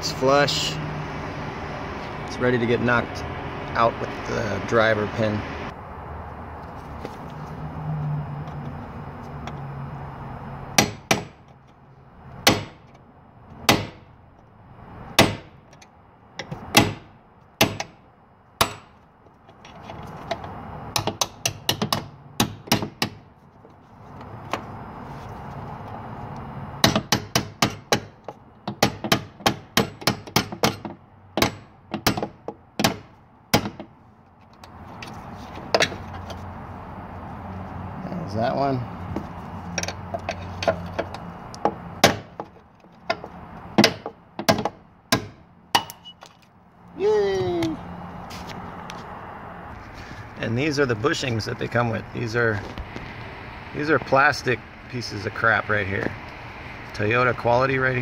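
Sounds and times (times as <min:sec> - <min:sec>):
hammer striking metal punch: 0:12.4 - 0:12.8, 0:13.7 - 0:14.0, 0:15.2 - 0:15.5, 0:16.4 - 0:18.0, 0:18.6 - 0:18.9, 0:26.8 - 0:28.1, 0:43.1 - 0:46.1.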